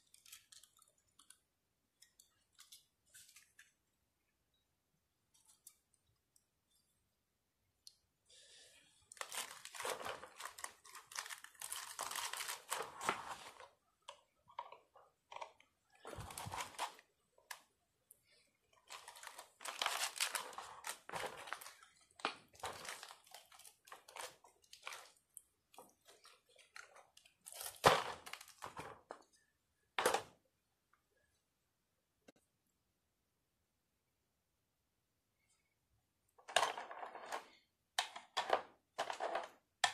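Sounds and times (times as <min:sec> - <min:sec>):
metal fins crunching and crinkling: 0:09.1 - 0:13.7, 0:14.6 - 0:17.6, 0:18.2 - 0:29.0.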